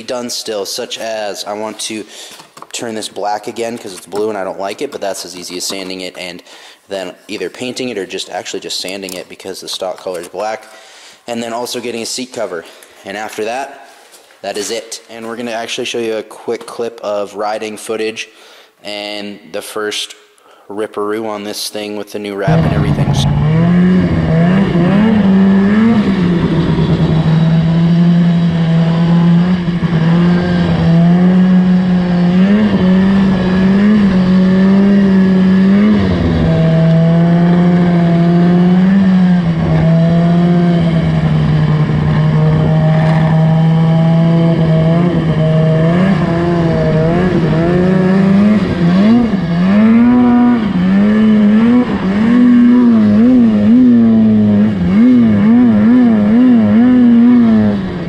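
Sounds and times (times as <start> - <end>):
snowmobile engine running: 22.5 - 27.1.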